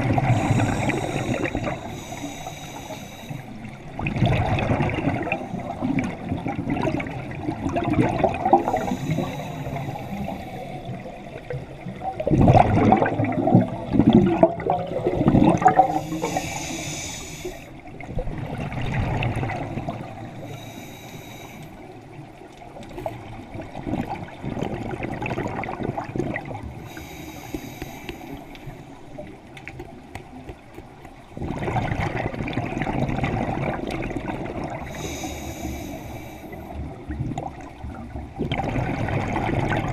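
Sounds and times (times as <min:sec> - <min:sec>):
exhaled air bubbling: 0:00.0 - 0:39.9
regulator breathing hiss: 0:00.3 - 0:03.7, 0:08.6 - 0:11.0, 0:15.8 - 0:17.8, 0:20.4 - 0:21.9, 0:26.8 - 0:29.0, 0:34.9 - 0:36.8.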